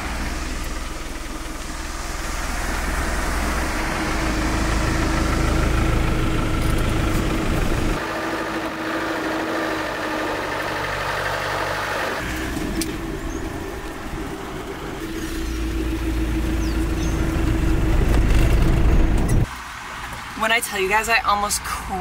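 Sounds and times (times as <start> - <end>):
deep rumble: 0.0 - 8.0, 12.4 - 19.5
steady whine: 0.0 - 11.1
car engine and road noise: 0.0 - 22.0.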